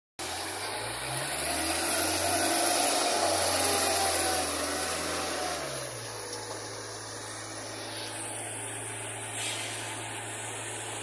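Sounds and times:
diesel engine running: 0.2s - 11.0s
broad hiss: 9.2s - 10.3s.

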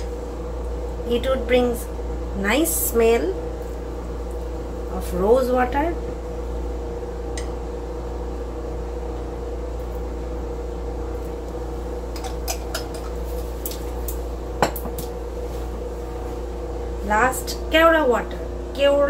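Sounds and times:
kitchen hum: 0.0s - 19.0s.

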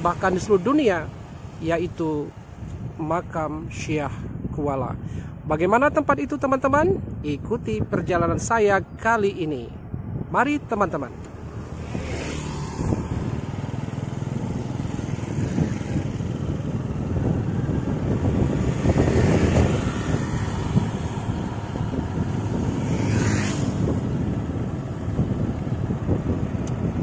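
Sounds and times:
engine and road rumble: 0.0s - 27.0s
motor scooters passing: 11.1s - 27.0s.

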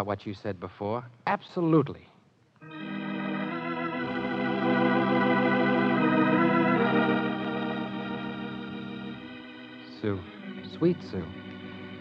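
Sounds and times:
organ chords: 2.6s - 12.0s.

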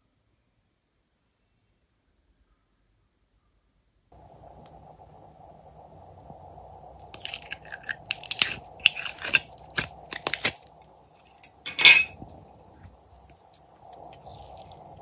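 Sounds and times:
slime crackling and popping: 7.0s - 11.6s, 12.3s - 15.0s.

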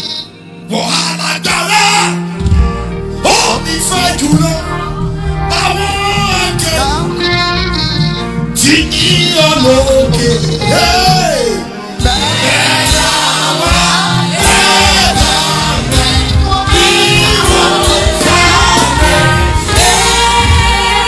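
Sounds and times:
band with drums and bass: 1.5s - 21.0s
man singing: 5.5s - 20.1s
backing vocalists: 9.3s - 21.0s.

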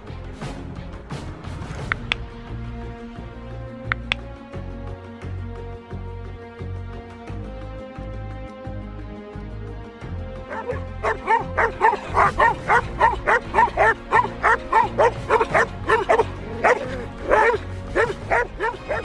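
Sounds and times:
background music: 0.0s - 19.0s
dogs barking rapidly: 10.5s - 19.0s.

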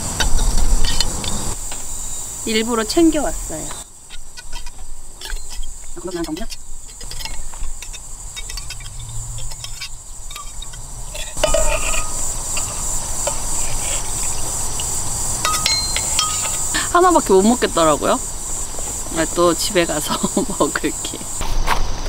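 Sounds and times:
crickets trilling: 0.0s - 22.0s
metal spoon scraping saucepan: 0.2s - 1.4s, 4.1s - 18.1s.

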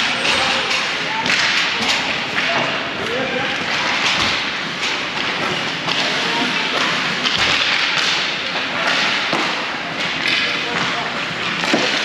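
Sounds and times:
hockey sticks and puck knocking: 0.1s - 2.8s, 3.6s - 12.0s.

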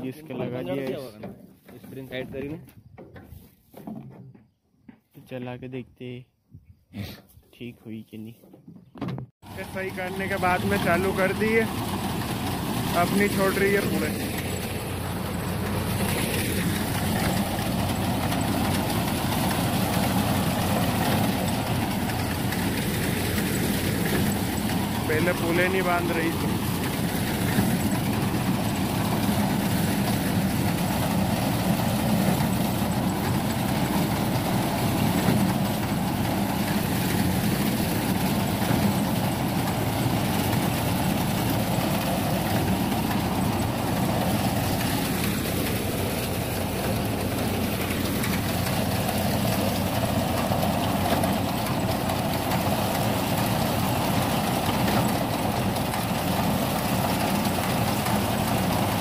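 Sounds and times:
tractor engine running: 9.4s - 59.0s
reaper binder cutting wheat: 9.8s - 51.4s.

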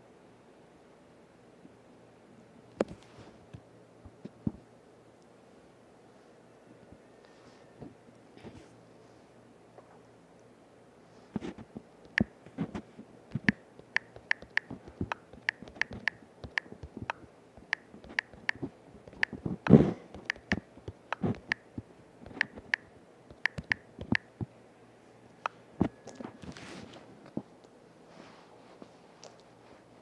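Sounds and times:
phone keyboard typing clicks: 12.1s - 12.3s, 13.3s - 19.5s, 20.2s - 24.4s.

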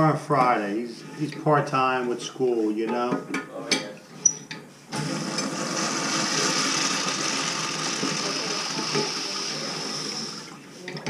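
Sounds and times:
urinal flushing water rush: 4.9s - 10.6s.

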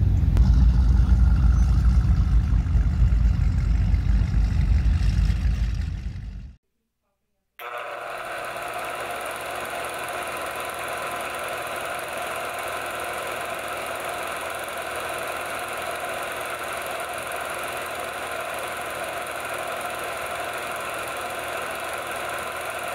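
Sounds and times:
film projector whirring: 7.6s - 22.9s.

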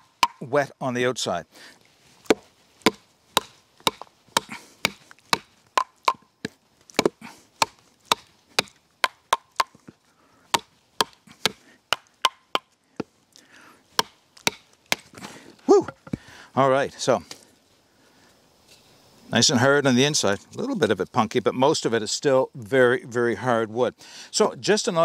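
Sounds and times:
wood splitting: 0.0s - 0.4s, 2.2s - 6.2s, 6.9s - 9.8s, 10.5s - 12.7s, 14.0s - 16.2s.

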